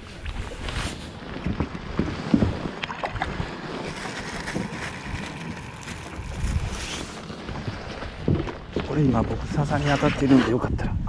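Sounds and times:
water sloshing against raft: 0.0s - 10.8s
wind buffeting microphone: 0.0s - 11.0s.

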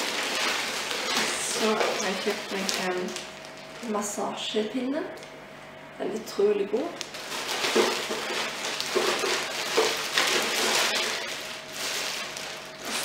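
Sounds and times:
plastic bag rustling: 0.0s - 4.2s, 7.0s - 13.0s.

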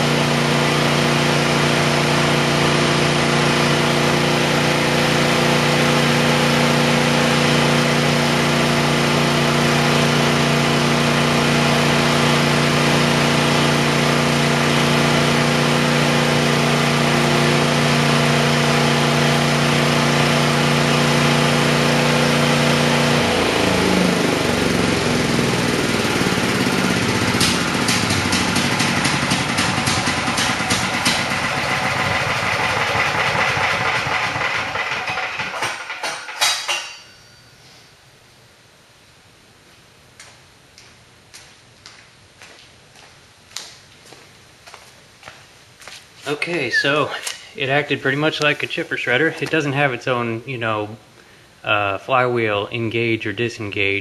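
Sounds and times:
chipper shredder engine running: 0.0s - 36.3s
rotor coasting down: 3.0s - 36.3s.

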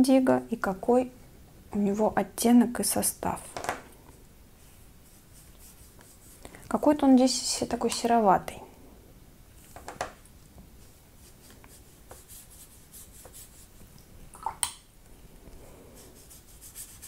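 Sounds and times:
wet brush stroking on paper: 4.6s - 6.6s, 10.8s - 14.0s, 15.8s - 17.0s.

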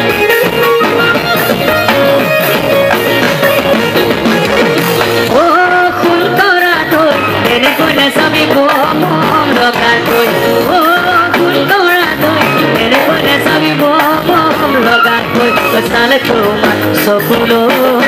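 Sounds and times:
loud instrumental backing: 0.0s - 18.0s
man singing into microphone: 5.3s - 18.0s.

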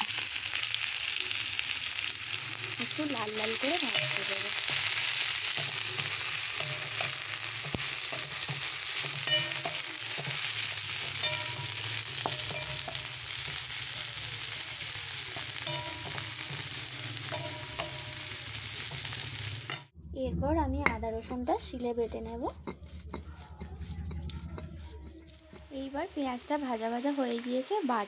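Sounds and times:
onions sizzling in oil: 0.0s - 19.9s, 21.2s - 28.0s
spatula scraping a wok: 0.1s - 19.9s, 21.1s - 28.0s.

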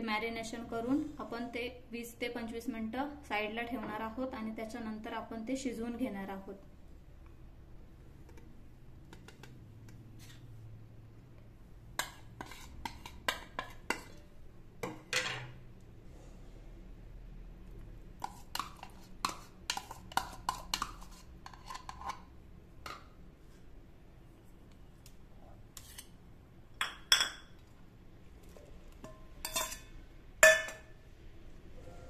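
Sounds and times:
metal spoon clinking on pot: 26.8s - 27.6s, 29.0s - 30.9s.

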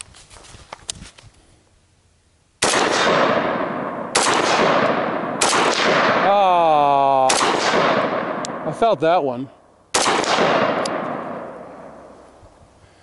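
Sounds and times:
rifle shots with echo: 2.6s - 9.2s, 9.9s - 12.2s.

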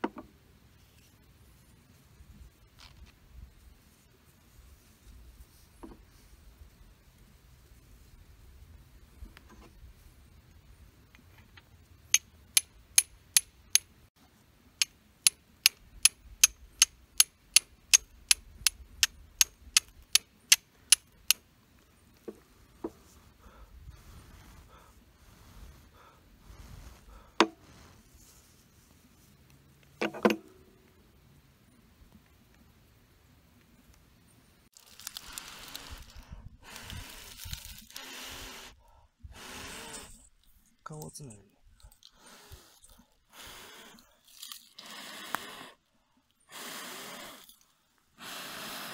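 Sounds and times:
flint and steel striking: 12.2s - 13.9s, 14.8s - 21.4s
dry leaves crackling and rustling: 34.7s - 36.2s.

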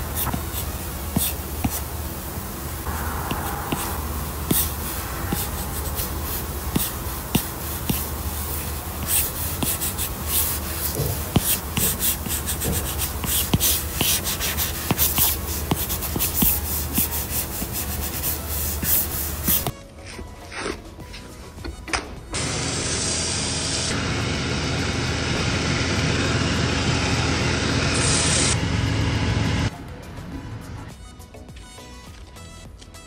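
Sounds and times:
low steady hum: 0.0s - 16.9s
pen scratching on paper: 0.1s - 1.9s, 3.2s - 20.8s.

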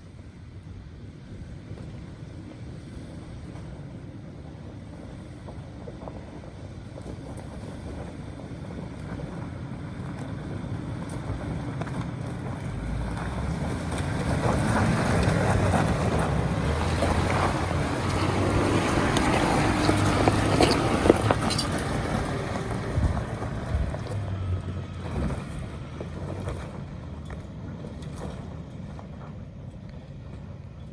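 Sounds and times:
truck engine pulling uphill: 0.0s - 30.9s
tyres crunching over stones: 10.0s - 30.8s.

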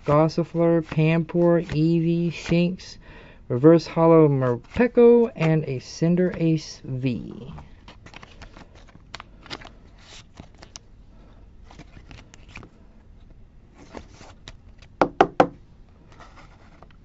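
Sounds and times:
plastic sleeve rustling: 7.3s - 10.9s.

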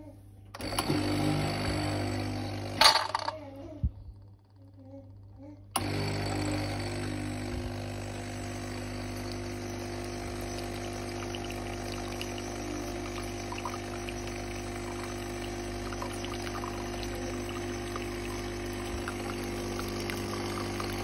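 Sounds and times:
espresso machine pump humming: 0.6s - 3.4s, 5.8s - 21.0s
water running into cup: 5.8s - 21.0s.

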